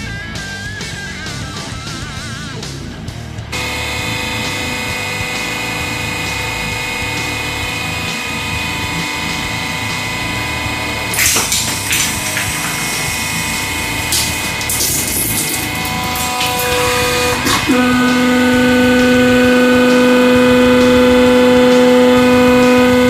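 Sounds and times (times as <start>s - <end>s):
hydraulic pump motor whine: 3.5s - 23.0s
glass cracking: 11.1s - 16.7s.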